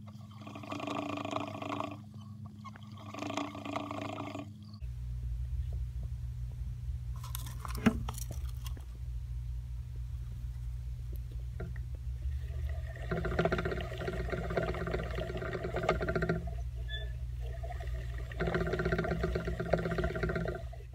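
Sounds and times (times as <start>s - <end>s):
hamster wheel whirring and rattling: 0.0s - 4.8s, 11.6s - 20.9s
steady low hum: 0.0s - 20.9s.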